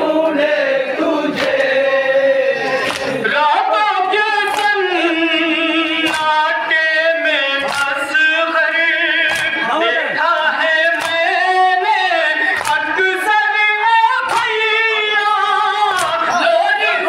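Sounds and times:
group chorus singing: 0.0s - 17.0s
man chanting unaccompanied: 1.6s - 17.0s
hands slapping chests: 2.8s - 3.2s, 4.4s - 4.8s, 6.0s - 6.4s, 7.6s - 8.1s, 9.2s - 9.6s, 10.9s - 11.3s, 12.5s - 12.9s, 14.2s - 14.6s, 15.9s - 16.2s.

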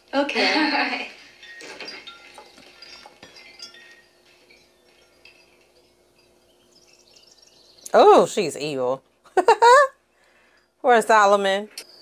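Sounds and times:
wind chime tinkling: 1.1s - 8.8s.

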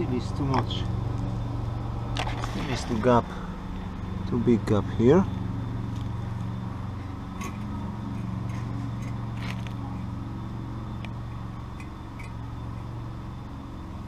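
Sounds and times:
low engine hum: 0.0s - 14.0s.

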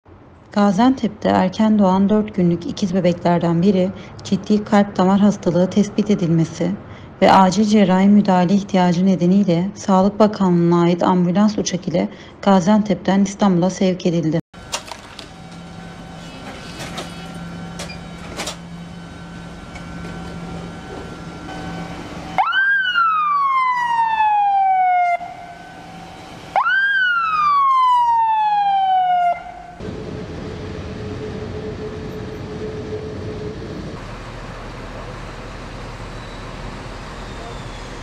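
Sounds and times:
vehicle and street noise: 0.0s - 38.0s
ambulance siren wailing: 15.2s - 34.0s.

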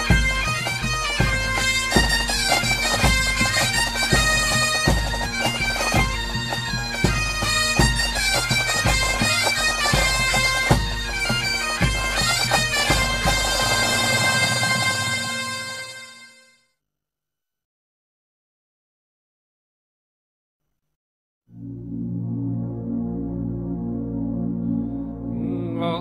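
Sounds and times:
drum beats: 0.0s - 15.2s
bagpipe music with drone: 0.0s - 16.6s, 21.6s - 26.0s.

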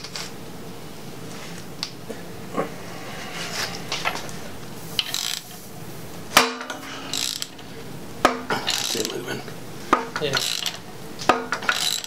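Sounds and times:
ratchet clicking: 5.0s - 5.6s, 6.6s - 7.7s, 8.4s - 9.3s, 10.0s - 12.0s
wrench metallic clank: 5.0s - 5.6s, 6.4s - 9.3s, 9.9s - 12.0s.

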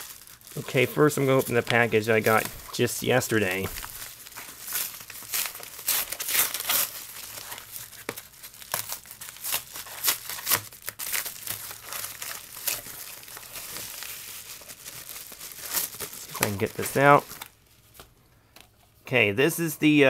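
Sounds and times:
paper mailer ripping: 0.0s - 17.5s
packing tape peeling: 3.4s - 17.6s.

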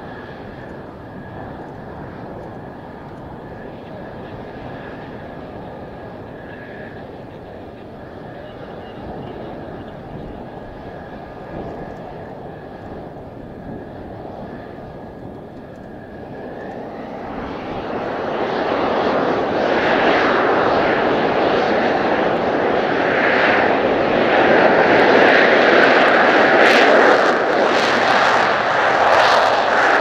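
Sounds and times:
jet engine roaring: 0.0s - 30.0s.

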